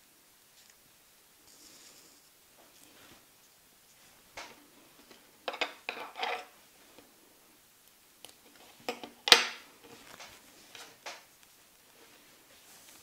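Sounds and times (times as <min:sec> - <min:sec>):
wire and needle rustling: 0:07.8 - 0:13.0.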